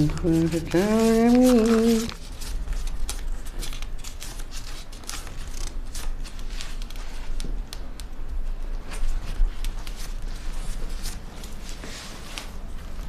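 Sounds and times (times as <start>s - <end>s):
banknotes flicking and rustling: 0.0s - 13.0s.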